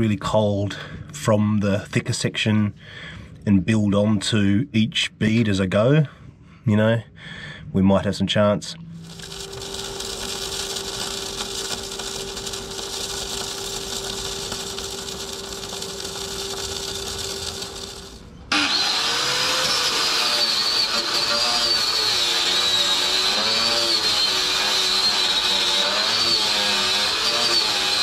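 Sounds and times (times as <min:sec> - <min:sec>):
arc welding hiss and hum: 0:09.0 - 0:28.0
power tool whining: 0:09.0 - 0:28.0.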